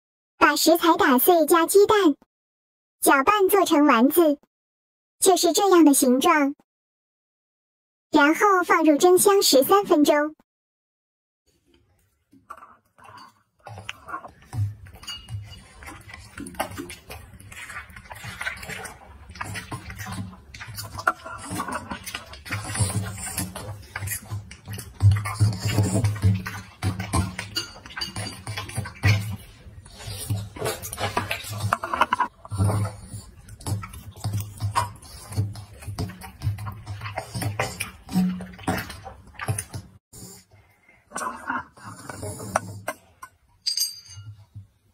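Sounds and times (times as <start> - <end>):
plate clinking and scraping: 12.5 - 16.3
dog licking and eating: 13.6 - 39.8.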